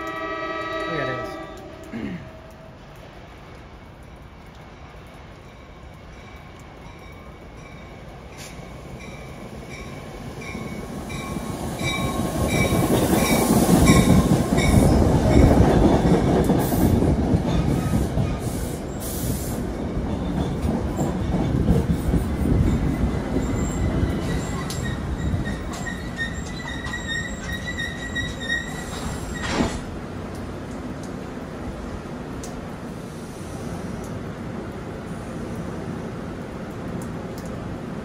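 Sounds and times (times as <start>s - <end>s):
train wheel rumble: 0.0s - 38.0s
thin wheel squeal: 24.3s - 29.6s.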